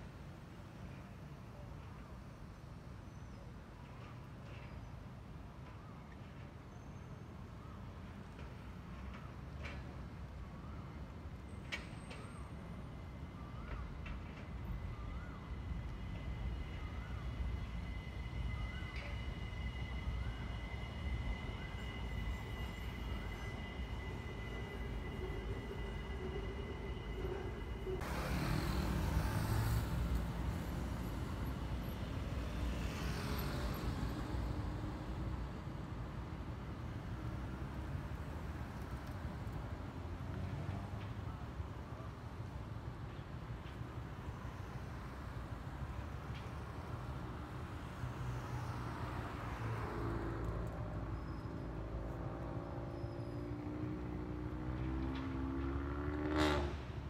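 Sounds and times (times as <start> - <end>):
monorail train whine: 0.0 - 55.6
city traffic: 0.0 - 57.0
cars driving past: 22.0 - 35.6, 44.6 - 57.0
vehicle engine pulling away: 28.0 - 31.0, 52.3 - 56.9
motorcycle driving past: 54.0 - 56.9.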